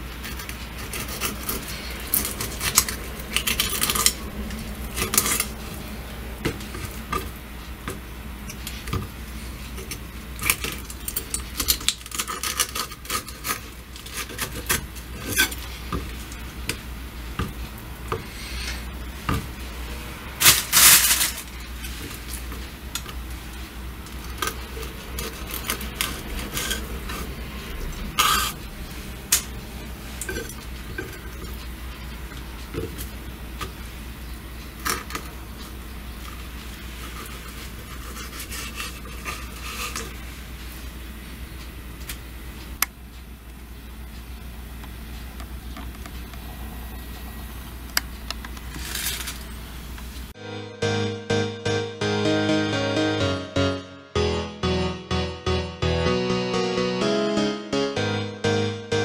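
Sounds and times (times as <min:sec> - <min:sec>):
knife scraping on cutting board: 0:00.2 - 0:04.1.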